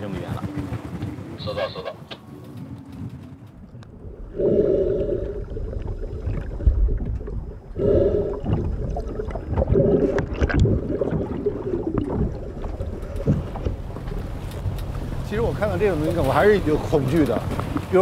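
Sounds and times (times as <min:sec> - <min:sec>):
wind buffeting microphone: 0:00.0 - 0:18.0
moaning wind tone: 0:02.6 - 0:14.9.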